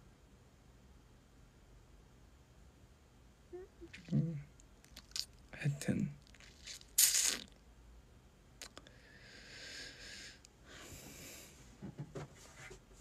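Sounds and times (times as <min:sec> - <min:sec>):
person breathing: 0:08.8 - 0:11.8.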